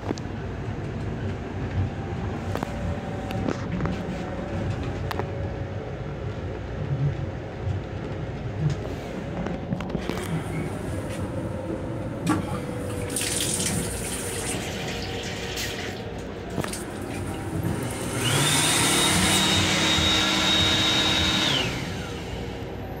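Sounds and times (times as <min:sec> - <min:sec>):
water running from faucet: 0:13.0 - 0:16.0
hand dryer blowing: 0:16.7 - 0:22.7.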